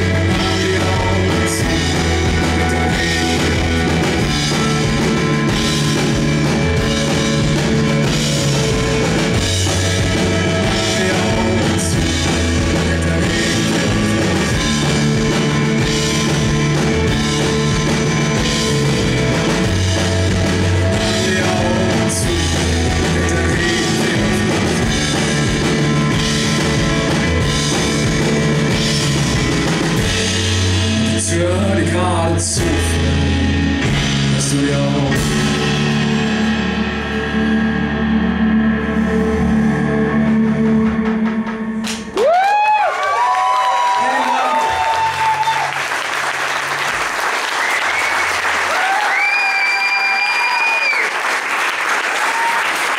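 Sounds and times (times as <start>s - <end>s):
drum kit with cymbals: 0.0s - 31.5s
keyboards: 0.0s - 42.2s
bass: 0.0s - 52.9s.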